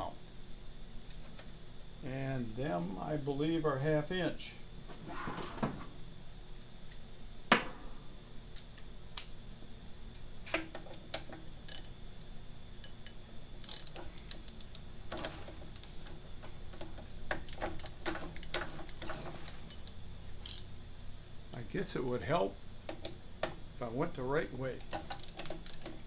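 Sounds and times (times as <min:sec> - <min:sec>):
socket ratchet clicking: 0:10.9 - 0:11.9, 0:12.8 - 0:16.0, 0:17.3 - 0:20.7, 0:24.8 - 0:26.0.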